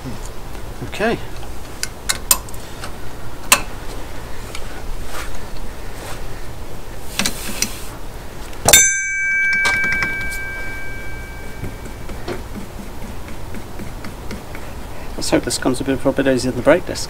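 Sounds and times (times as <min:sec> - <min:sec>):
ringing metal clang: 0:08.7 - 0:12.5.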